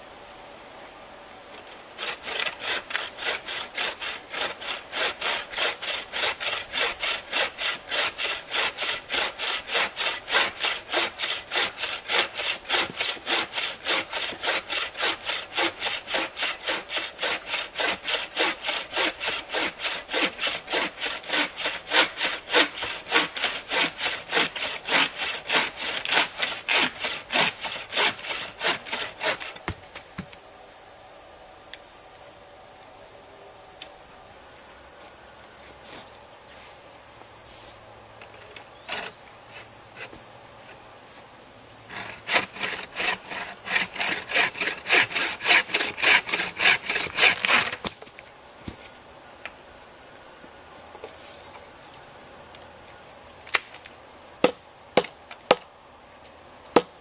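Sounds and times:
bucksaw cutting a log: 2.0s - 29.8s, 38.8s - 39.2s, 41.9s - 48.0s.

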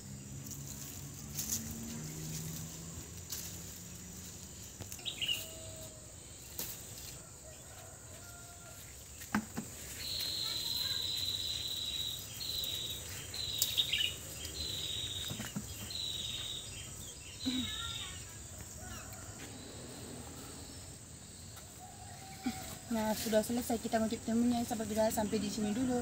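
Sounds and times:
insect high-pitched call: 1.4s - 7.6s, 9.8s - 23.1s.

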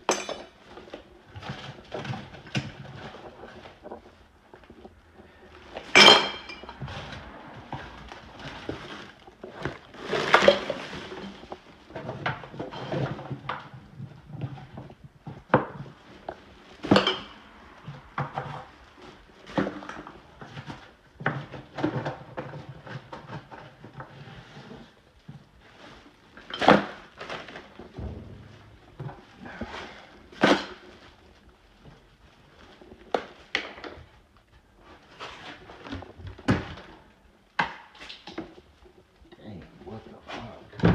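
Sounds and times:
dishes and pots clattering: 0.0s - 0.6s, 6.0s - 6.8s, 16.8s - 17.4s.

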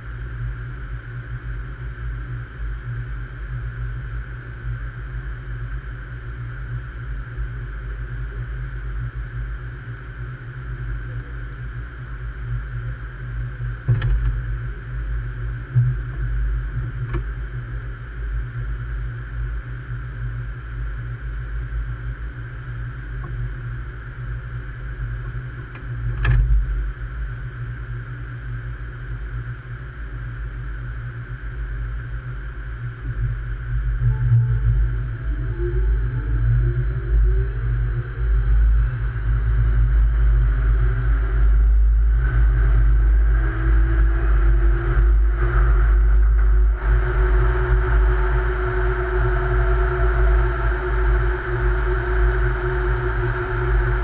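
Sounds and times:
train humming at platform: 41.0s - 54.0s.

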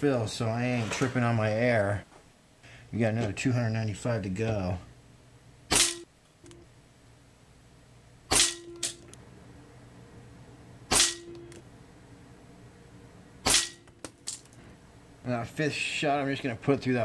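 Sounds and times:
air rifle shots: 5.7s - 6.1s, 8.3s - 9.0s, 10.9s - 11.3s, 13.4s - 13.8s.

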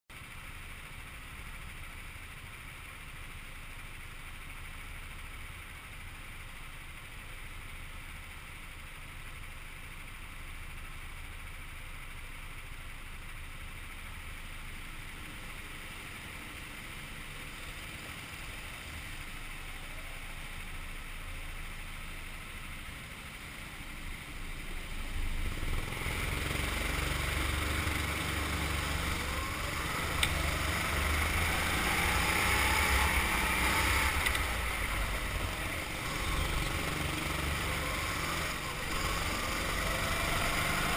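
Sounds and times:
go-kart engines idling: 0.1s - 40.9s
go-kart engine accelerating: 14.8s - 40.9s.

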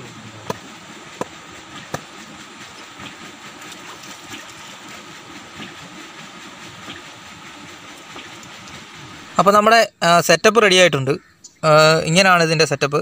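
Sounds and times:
water sloshing and splashing: 0.0s - 9.4s
wooden knocks on bamboo fence: 1.2s - 2.1s.

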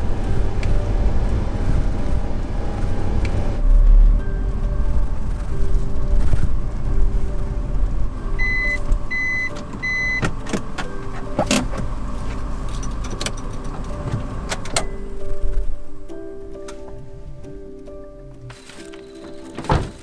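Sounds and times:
truck engine running: 0.0s - 18.6s
short high beeps: 8.4s - 10.2s
clicks and clacks in cab: 8.7s - 15.0s.

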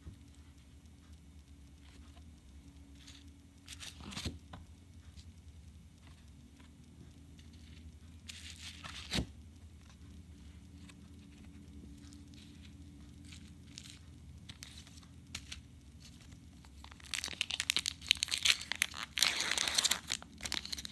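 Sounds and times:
cards rustling over bubble wrap: 3.0s - 4.4s, 7.4s - 9.4s, 10.5s - 20.9s.

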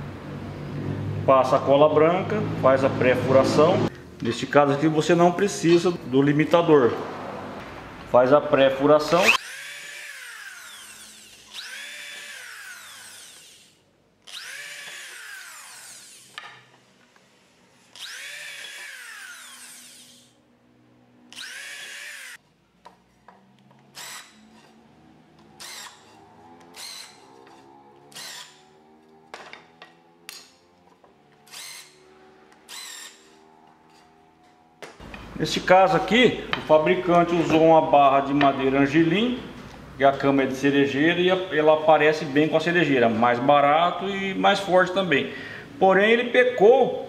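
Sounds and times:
electric drill drilling into wood: 9.2s - 16.4s, 17.9s - 20.4s, 21.3s - 22.4s, 23.9s - 24.6s, 25.5s - 28.8s, 31.4s - 32.0s, 32.6s - 33.4s.

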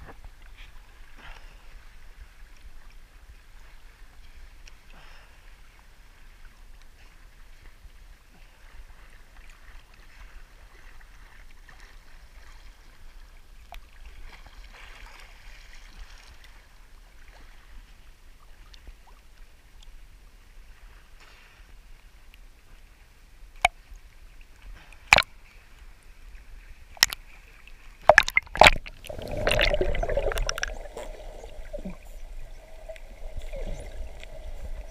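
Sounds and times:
water lapping and sloshing: 0.0s - 34.9s
sharp knocks and splashes: 25.0s - 25.3s, 26.9s - 27.2s, 28.0s - 32.2s
underwater hum: 26.8s - 34.9s
rush of water: 26.9s - 34.9s.

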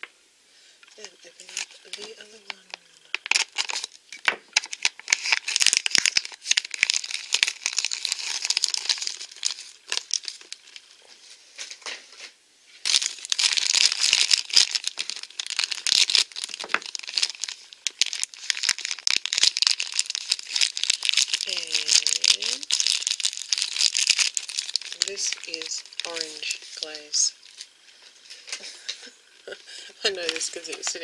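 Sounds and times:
plastic packaging crinkling and tearing: 1.0s - 11.0s, 12.8s - 27.7s, 30.0s - 31.0s.

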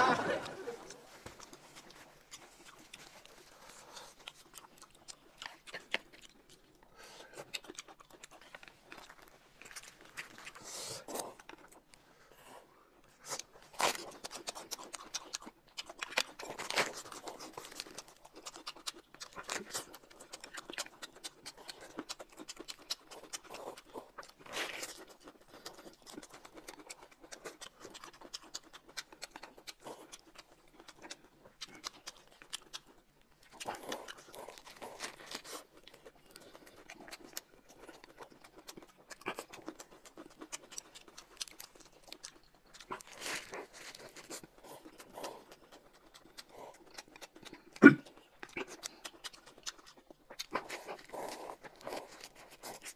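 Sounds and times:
crunching and chewing food: 0.0s - 52.9s.

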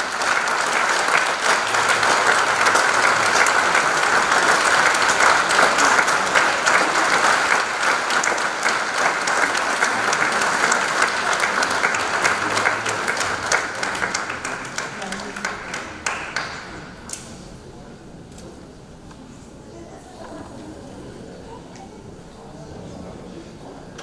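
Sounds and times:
audience applause: 0.0s - 17.3s.

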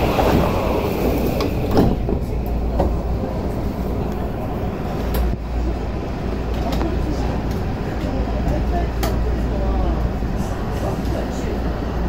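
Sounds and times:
train doors closing thud: 0.0s - 3.2s
subway train rumbling: 0.0s - 12.0s.

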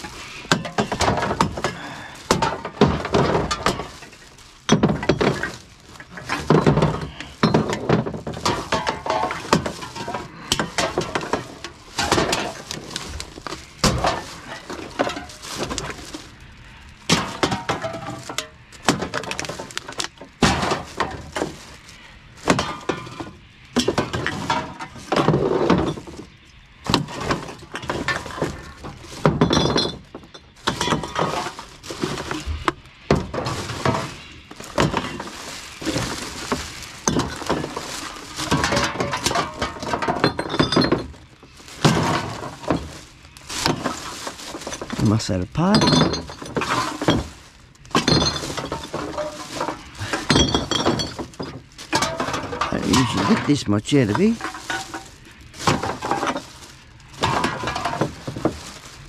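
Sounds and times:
bottles and cans clinking: 0.0s - 59.0s
glass bottles ringing: 0.5s - 12.7s, 29.2s - 31.6s, 33.2s - 43.0s, 43.7s - 58.7s.

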